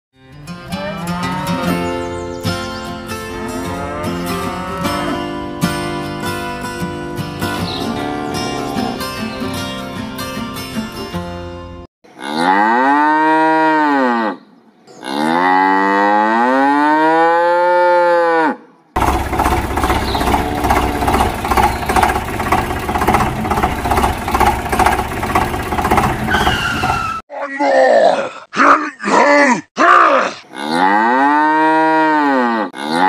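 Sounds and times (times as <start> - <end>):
cow mooing: 0.7 - 2.0, 3.3 - 5.5, 7.8 - 9.1, 12.2 - 14.4, 15.0 - 18.6, 19.6 - 21.8, 30.5 - 33.0
steady rattling: 19.0 - 27.2.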